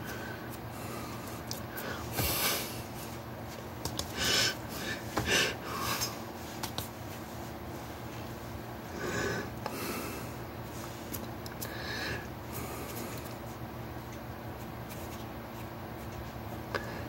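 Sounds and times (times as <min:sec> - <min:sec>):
low electrical hum: 0:00.0 - 0:17.0
hands and clothing rustling: 0:01.2 - 0:08.6, 0:12.6 - 0:16.6
breathing: 0:11.6 - 0:13.2, 0:16.7 - 0:17.0.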